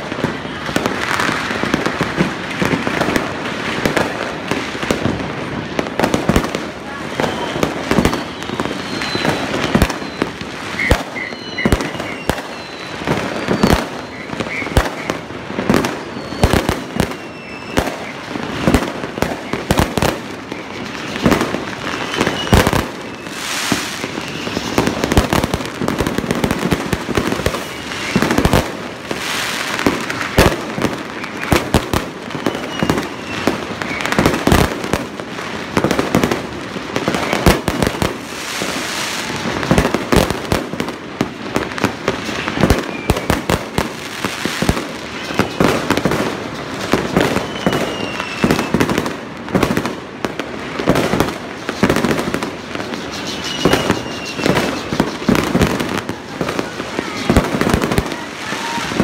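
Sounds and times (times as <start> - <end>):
fireworks bangs and pops: 0.0 - 59.0
falling firework whistles: 7.1 - 34.8, 42.0 - 49.1, 50.9 - 59.0.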